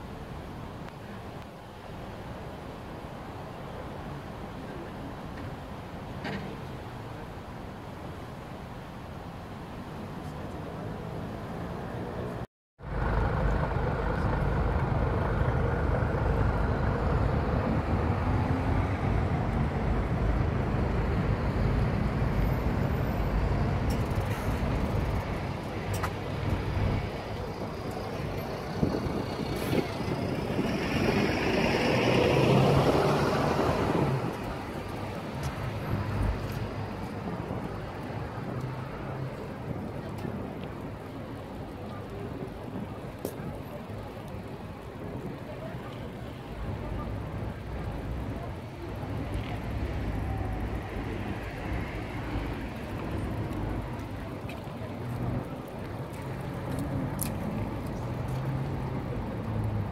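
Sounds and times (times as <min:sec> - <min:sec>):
road traffic passing: 0:00.0 - 0:59.9
loud vehicle passing: 0:28.7 - 0:34.8.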